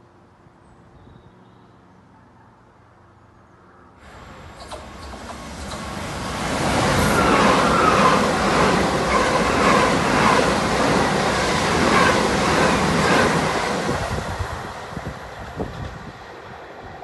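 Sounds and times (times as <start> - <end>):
train wheels rumbling on rails: 4.0 - 17.0.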